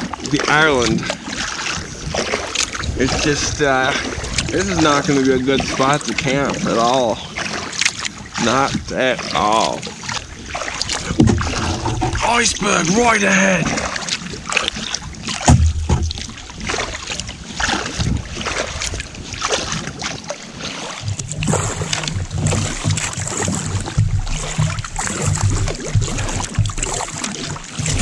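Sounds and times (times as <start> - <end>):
paddle strokes splashing: 0.0 - 28.0
water slapping the hull: 0.0 - 28.0
wind buffeting microphone: 0.5 - 6.8, 10.2 - 28.0.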